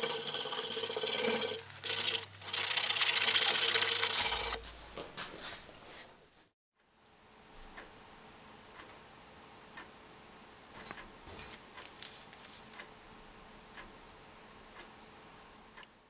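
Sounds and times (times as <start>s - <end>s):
faint clock-like ticking: 7.6s - 8.0s, 8.6s - 11.9s, 12.7s - 16.0s
rustling and clicking handling: 10.8s - 12.9s.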